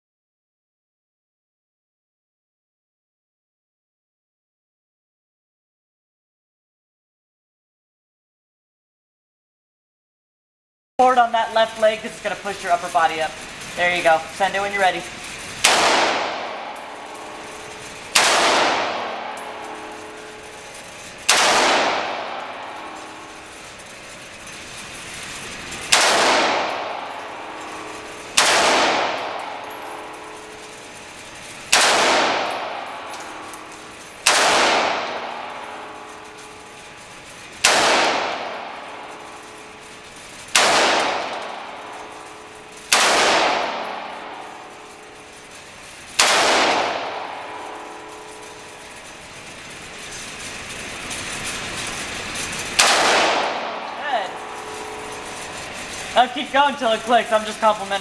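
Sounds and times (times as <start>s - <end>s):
rifle shots with echo: 15.6s - 23.8s, 25.9s - 37.0s, 37.6s - 45.3s, 46.2s - 48.8s, 52.8s - 56.0s.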